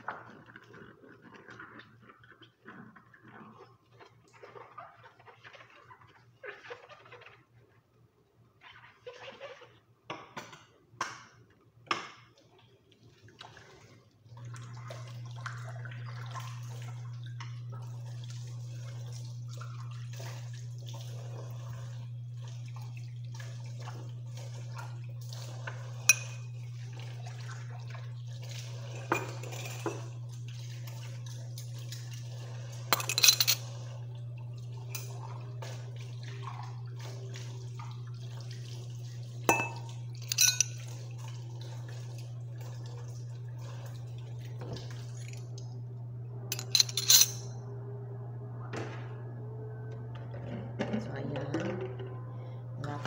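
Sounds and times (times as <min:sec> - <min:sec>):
dishes and cutlery clinking: 0:26.1 - 0:26.5, 0:33.0 - 0:33.7, 0:39.5 - 0:40.8, 0:46.5 - 0:47.5
low hum: 0:45.1 - 0:50.8.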